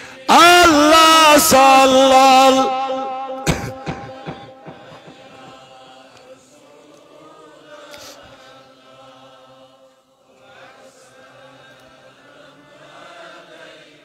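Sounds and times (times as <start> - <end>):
sermon speech: 0.0 - 5.1
congregation chanting in unison: 0.0 - 14.0.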